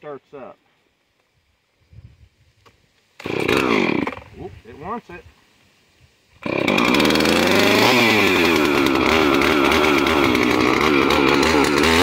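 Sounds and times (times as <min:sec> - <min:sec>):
chainsaw running: 0:03.2 - 0:04.4, 0:06.4 - 0:12.0.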